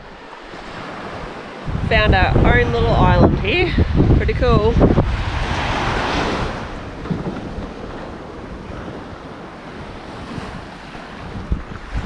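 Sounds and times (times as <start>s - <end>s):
wind rumbling on microphone: 0.0s - 12.0s
small waves washing on sand: 3.0s - 12.0s.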